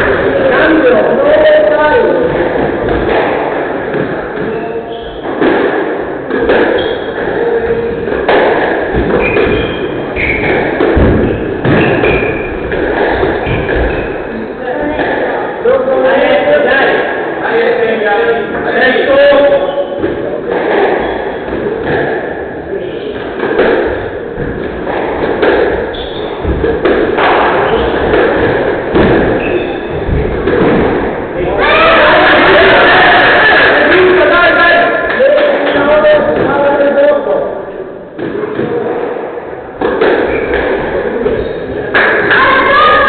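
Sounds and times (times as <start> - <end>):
racquets striking squash ball: 0.0 - 17.4, 18.4 - 37.1, 38.0 - 43.0
ball hitting walls: 7.9 - 14.3, 23.2 - 31.8
shoes squeaking on wooden floor: 8.9 - 14.4, 24.4 - 30.8.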